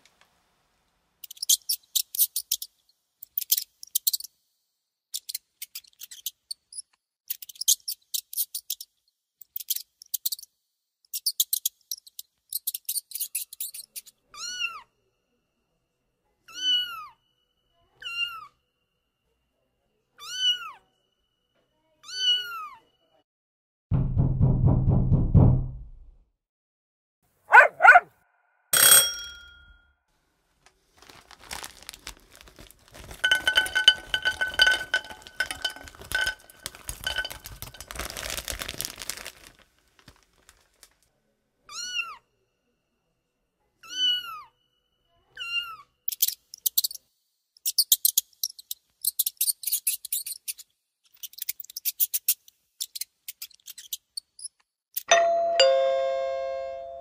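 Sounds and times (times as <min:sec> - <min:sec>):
crinkling rustle: 0:30.5 - 0:41.1
squeaks: 0:51.2 - 0:54.5.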